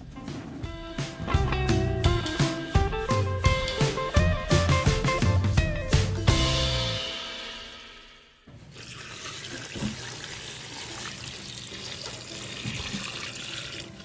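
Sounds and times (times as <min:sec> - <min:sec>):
background music: 0:00.0 - 0:08.5
water pouring into bowl: 0:08.7 - 0:14.0.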